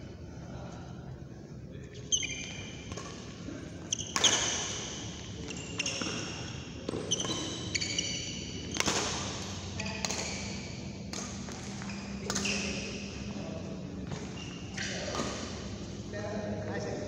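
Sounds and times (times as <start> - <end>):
shoes squeaking on court: 2.0 - 15.7
rackets hitting shuttlecock: 4.1 - 4.8, 8.6 - 13.2.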